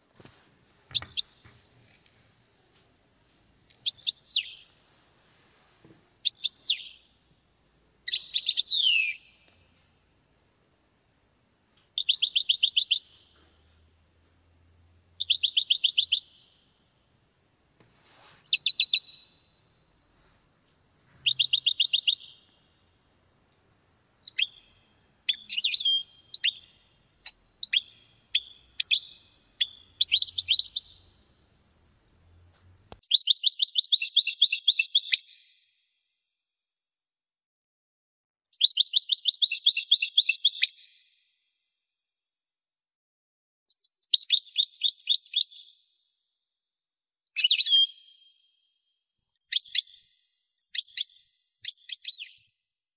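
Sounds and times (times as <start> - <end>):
goldfinch trilling and chirping: 0.9 - 1.8, 3.8 - 4.6, 6.2 - 7.1, 8.0 - 9.4, 12.0 - 13.4, 15.2 - 16.6, 18.4 - 19.3, 21.2 - 22.5, 24.2 - 32.1, 49.4 - 50.0, 50.6 - 52.4.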